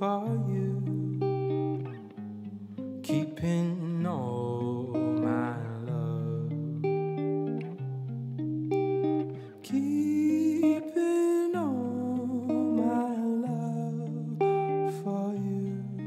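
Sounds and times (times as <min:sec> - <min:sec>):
plucked acoustic guitar: 0:00.0 - 0:16.0
wordless humming vocal: 0:03.1 - 0:06.8.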